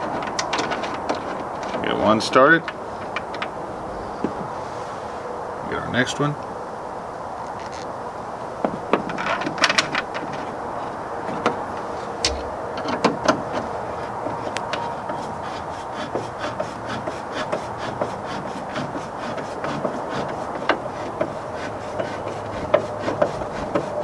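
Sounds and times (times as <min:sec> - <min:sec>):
metal scraping: 0:09.0 - 0:24.0.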